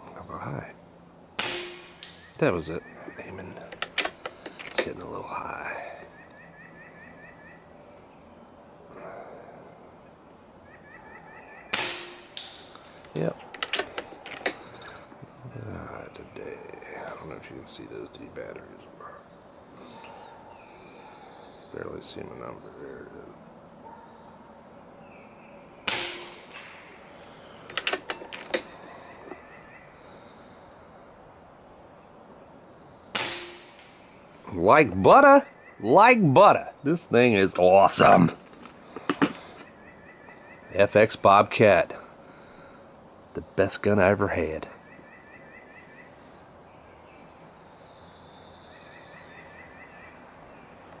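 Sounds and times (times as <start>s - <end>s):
air rifle firing: 1.4s - 2.2s, 11.7s - 12.7s, 25.8s - 27.0s, 33.1s - 34.0s.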